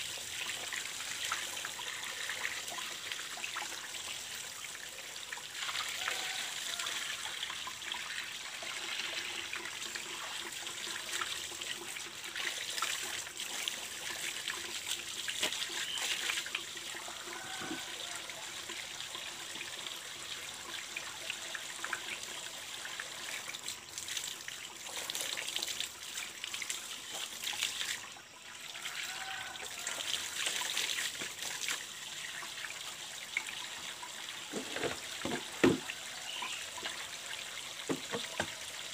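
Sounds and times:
water trickling from pipe: 0.0s - 38.9s
water sloshing in bucket: 34.4s - 36.0s, 37.8s - 38.6s.

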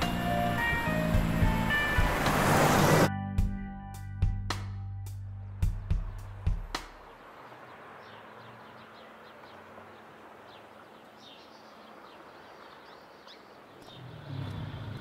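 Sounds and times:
outdoor background hiss: 0.0s - 3.1s, 5.1s - 15.0s
birds chirping: 6.0s - 15.0s.

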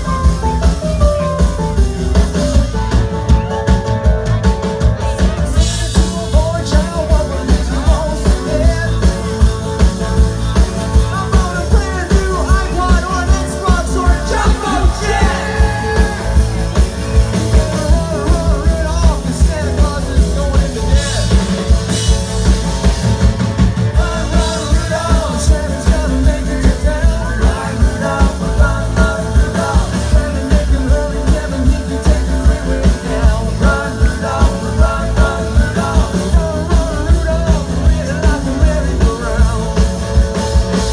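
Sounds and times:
live rock band playing: 0.0s - 40.9s
person singing: 10.6s - 21.7s, 23.9s - 40.8s.

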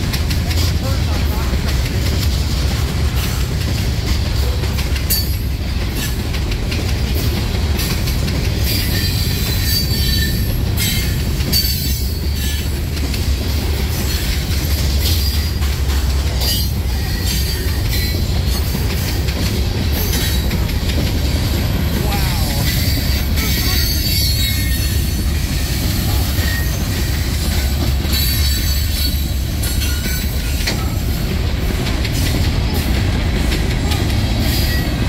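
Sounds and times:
train wheels rumbling on rail: 0.0s - 35.0s
high-pitched wheel squeals: 8.6s - 12.6s.

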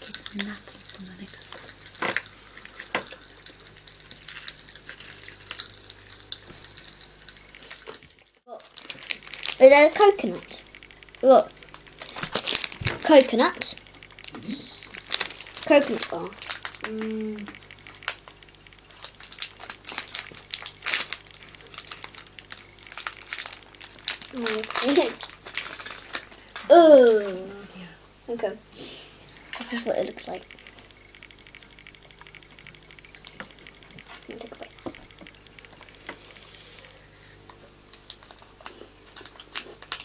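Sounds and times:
plastic wrapper crinkling: 0.0s - 27.3s, 37.0s - 40.0s
popping candy crackling: 0.0s - 27.4s, 29.5s - 40.0s.

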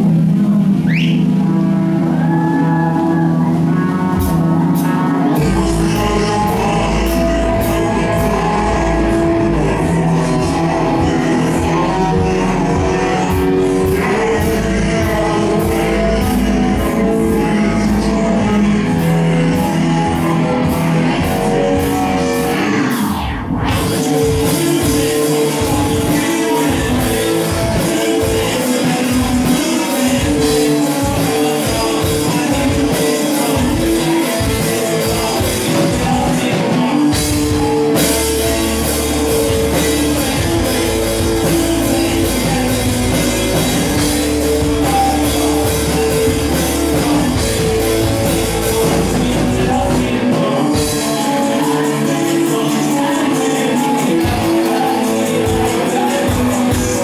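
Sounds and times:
sustained deep bass: 0.0s - 32.9s, 37.1s - 53.6s
guitar: 0.0s - 57.0s
person singing: 0.0s - 57.0s
drum beat: 23.7s - 57.0s.

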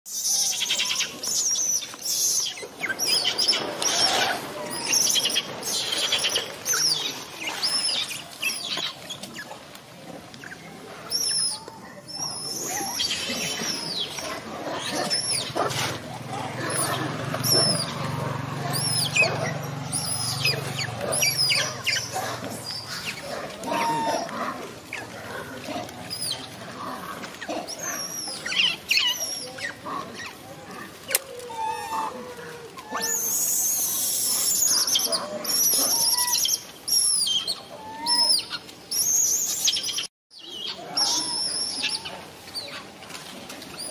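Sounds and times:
monkeys squealing: 16.4s - 18.0s, 18.6s - 24.3s, 27.5s - 30.4s, 31.3s - 32.2s, 32.8s - 39.8s
baby monkey squealing cries: 23.7s - 24.3s, 32.9s - 38.4s.

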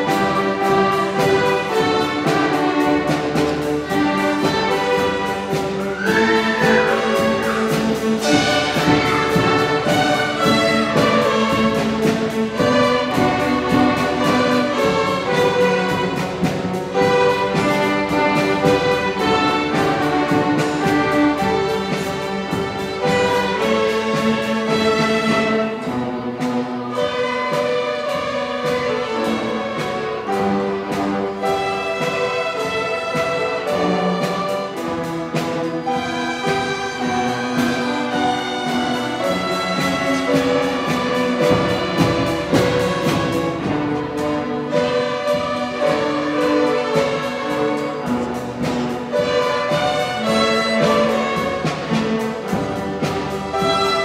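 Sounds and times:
string orchestra playing: 0.0s - 54.0s.

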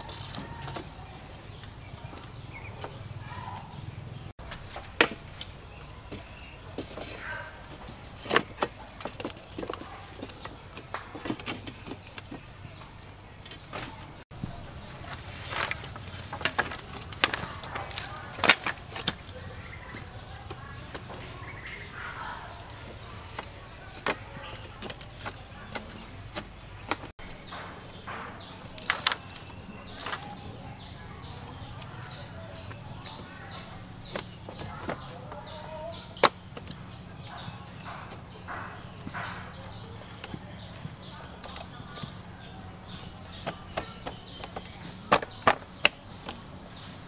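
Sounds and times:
bamboo slats knocking: 4.4s - 12.5s, 13.6s - 21.5s, 43.2s - 46.5s.

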